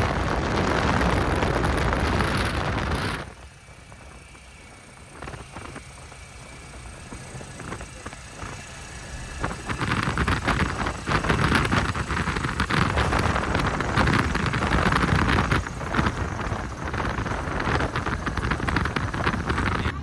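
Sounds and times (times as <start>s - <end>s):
light aircraft engine and propeller: 0.0s - 20.0s
wind rushing over microphone: 0.0s - 20.0s.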